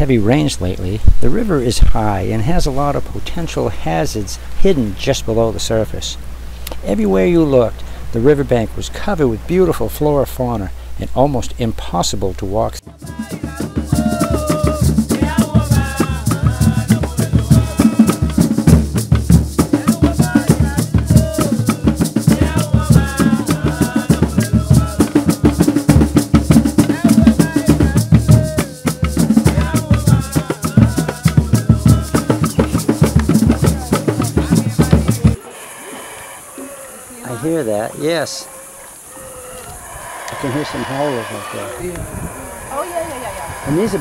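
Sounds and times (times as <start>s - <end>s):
music with fast percussion beat: 12.8s - 35.4s.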